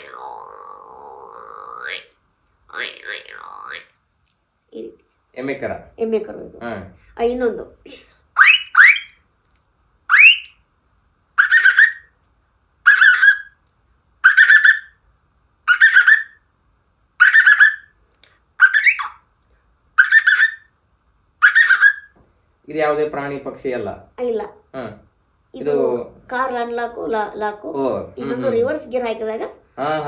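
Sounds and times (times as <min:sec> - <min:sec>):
person imitating car chirps: 0:00.0 - 0:02.1, 0:02.7 - 0:03.9.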